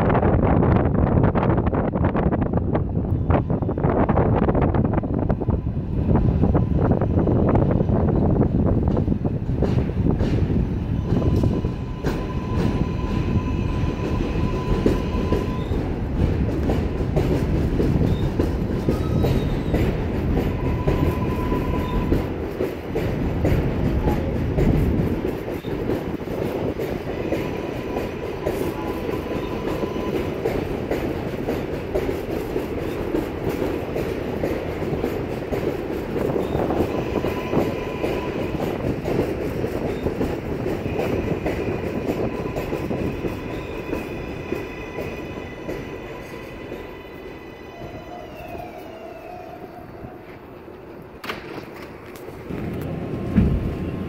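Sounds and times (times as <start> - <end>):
train rumbling: 0.0 - 54.0
wheels clattering over rails: 50.2 - 54.0.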